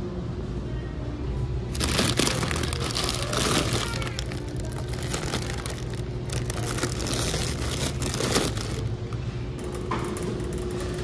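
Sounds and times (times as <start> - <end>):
plastic bag crinkling: 1.7 - 8.9.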